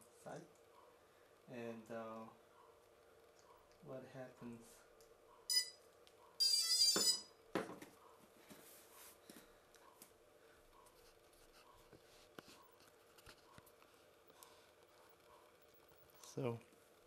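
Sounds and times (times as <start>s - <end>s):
electronic start-up beeps: 5.5s - 5.8s.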